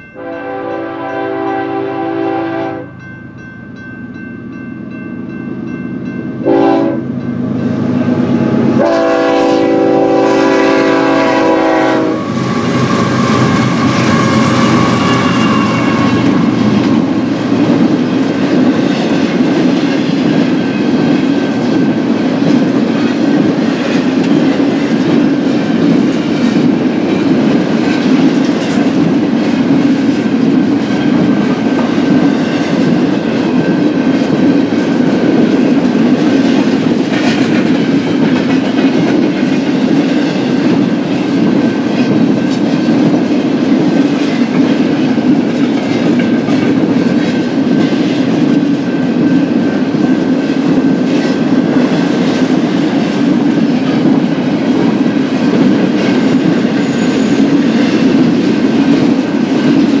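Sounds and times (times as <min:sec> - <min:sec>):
train wheels rumbling on track: 0:00.0 - 1:00.0.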